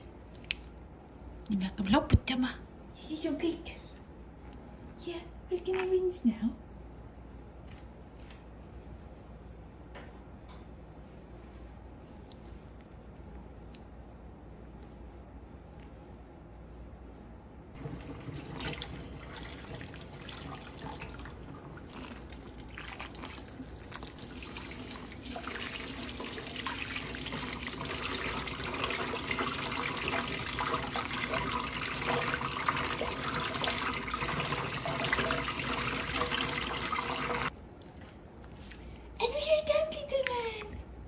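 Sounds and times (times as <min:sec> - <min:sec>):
water spraying from sink sprayer: 0:17.8 - 0:37.5.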